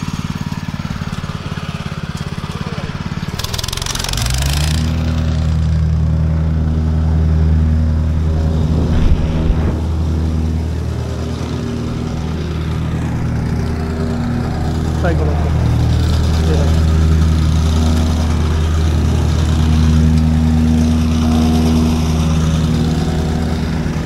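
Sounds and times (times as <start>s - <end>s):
plate compactor engine revving: 0.0s - 24.0s.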